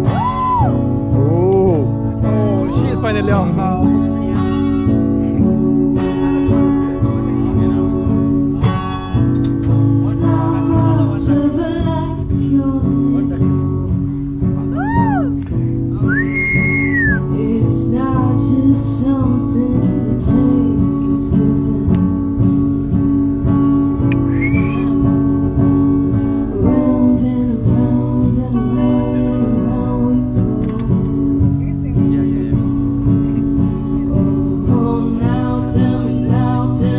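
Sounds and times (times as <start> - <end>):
acoustic-electric guitar chords: 0.0 - 36.9
high sliding guitar notes: 22.2 - 36.5.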